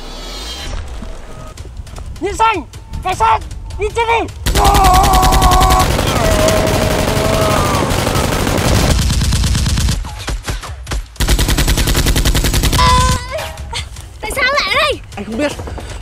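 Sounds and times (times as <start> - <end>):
automatic gunfire sound effects: 4.5 - 10.1.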